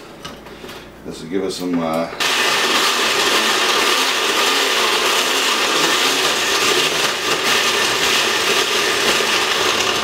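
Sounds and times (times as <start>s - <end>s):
blender running: 2.2s - 10.0s.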